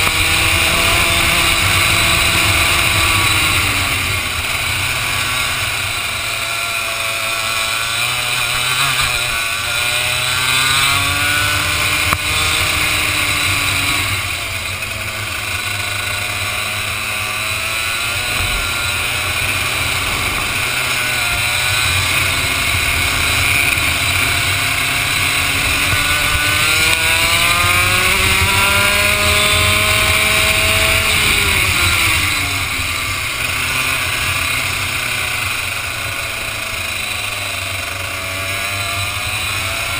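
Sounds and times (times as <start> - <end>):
kart engine accelerating: 0.0 - 39.9
wind noise: 17.6 - 33.4.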